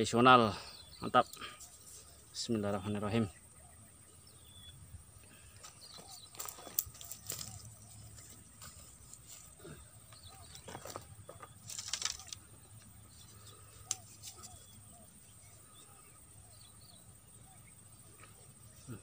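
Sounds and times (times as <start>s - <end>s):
faint bird chirps: 0.0s - 19.0s
gear rustling and knocking: 10.2s - 12.4s.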